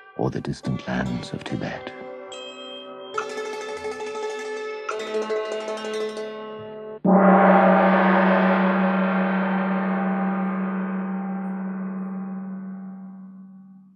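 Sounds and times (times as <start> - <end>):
music: 0.0 - 8.0
gong stroke ringing: 7.0 - 13.9.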